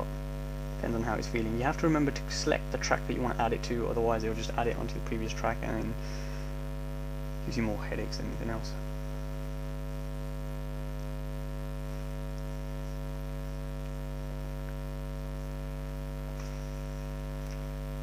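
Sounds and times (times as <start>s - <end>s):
electrical mains hum: 0.0s - 18.0s
faint ticks: 12.3s - 12.9s.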